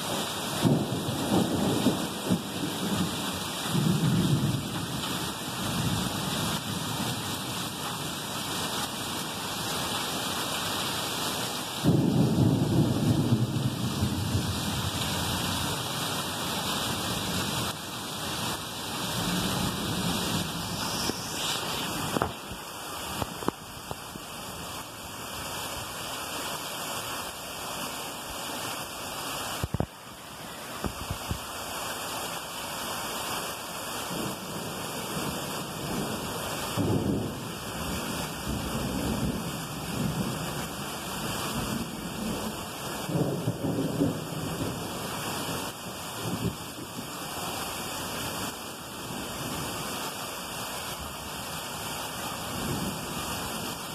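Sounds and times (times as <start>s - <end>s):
heavy rain pouring: 0.0s - 53.9s
low thunder rumbles: 0.6s - 7.3s, 11.8s - 15.6s, 35.7s - 40.8s.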